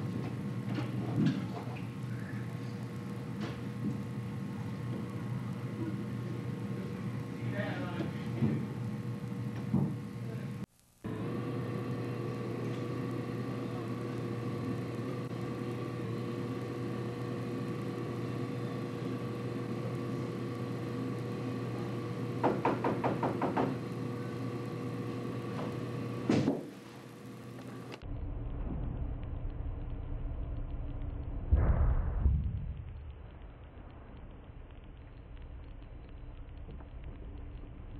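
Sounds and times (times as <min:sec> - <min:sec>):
steady hum with held tones: 0:00.0 - 0:37.9
knuckles knocking on a door: 0:22.4 - 0:23.8
brief loud burst: 0:31.5 - 0:32.7.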